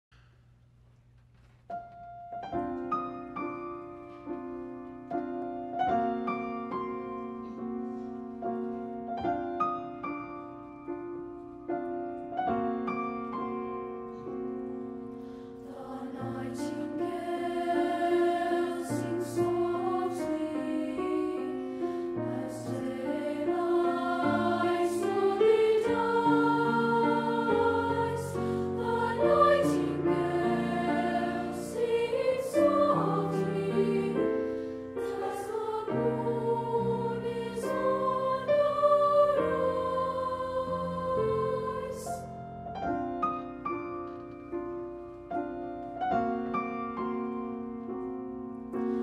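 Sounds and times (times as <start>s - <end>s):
piano notes: 1.7s - 49.0s
mixed choir singing: 15.6s - 42.3s.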